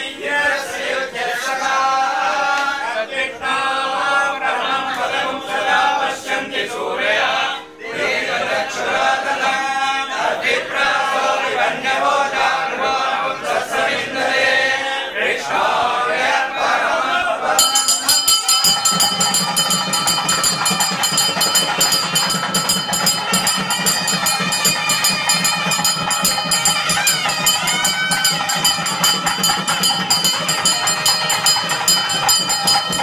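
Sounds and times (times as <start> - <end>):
men chanting hymns in unison: 0.0 - 17.7.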